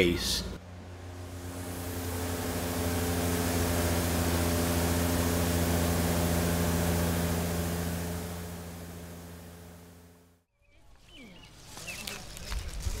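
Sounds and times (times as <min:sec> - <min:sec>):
low machine hum: 0:00.0 - 0:10.4
water mist hissing: 0:01.1 - 0:09.2.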